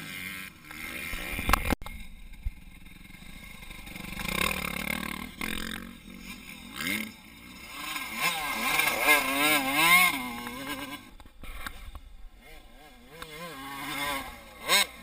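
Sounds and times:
motocross bike engines revving: 0.0s - 15.0s.

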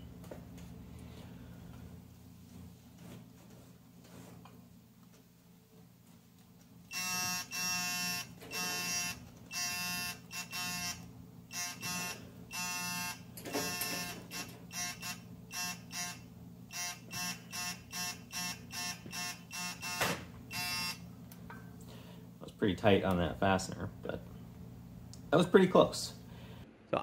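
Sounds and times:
electronic buzzer pulses: 6.9s - 21.0s.

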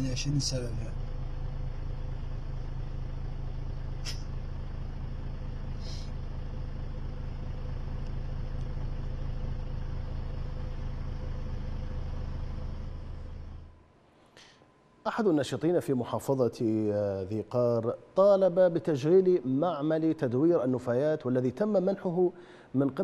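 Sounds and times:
vehicle engine idling: 0.0s - 13.9s
brief hiss: 4.0s - 4.3s
short click: 4.0s - 4.3s.

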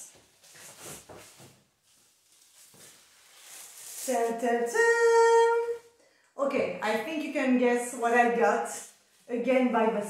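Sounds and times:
paper rustling: 0.2s - 4.4s.

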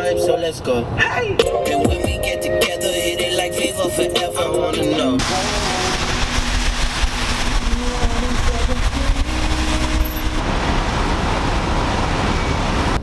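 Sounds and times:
car road noise and wind: 0.0s - 1.5s, 5.2s - 13.0s.

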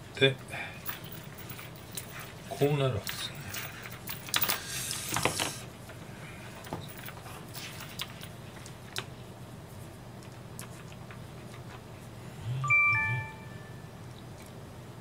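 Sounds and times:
two-note electronic chime: 12.4s - 14.0s.

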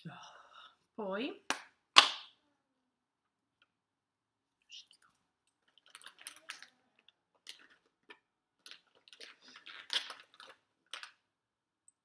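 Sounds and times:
plastic containers clicking and rattling: 5.7s - 11.2s.

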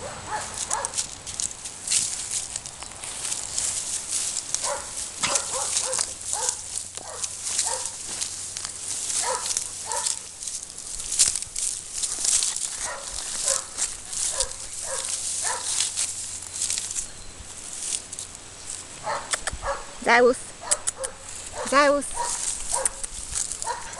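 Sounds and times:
dog barking: 0.0s - 1.0s, 4.6s - 8.0s, 9.2s - 10.2s, 12.8s - 13.7s, 14.3s - 15.8s, 19.0s - 20.0s, 20.6s - 23.9s
footsteps through dry grass: 0.0s - 23.9s.

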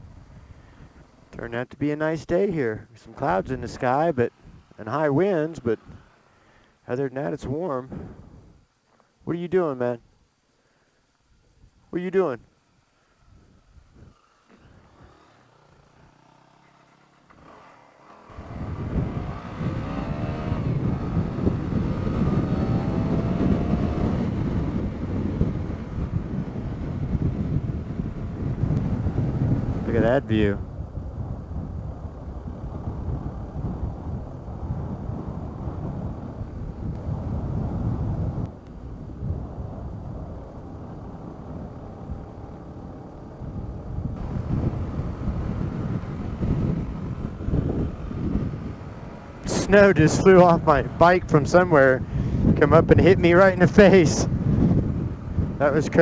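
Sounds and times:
wind and road noise: 0.0s - 56.0s
motorcycle engine accelerating: 14.1s - 56.0s.

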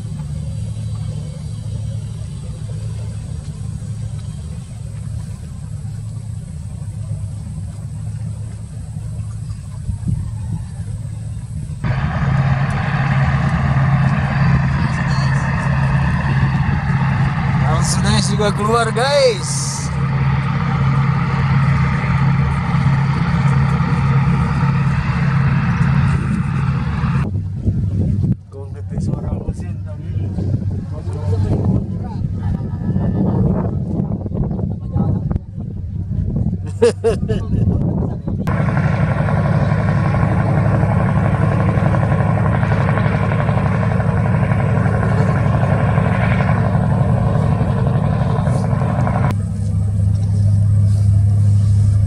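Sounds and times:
ship diesel engines droning: 0.0s - 27.6s, 38.4s - 52.0s
even rushing noise: 11.8s - 27.3s, 38.5s - 49.4s.

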